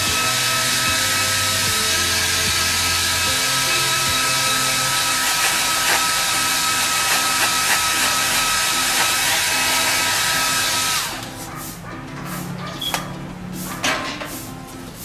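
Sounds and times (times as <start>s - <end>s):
blow dryer whining: 0.0s - 11.4s.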